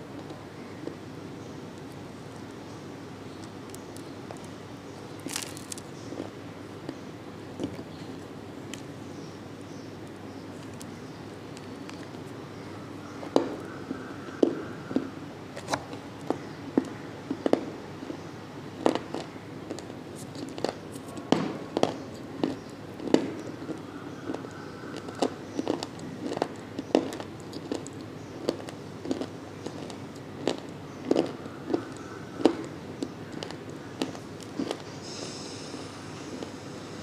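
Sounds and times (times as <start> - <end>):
mouth crunching dry clay: 5.2 - 5.9, 21.8 - 34.9.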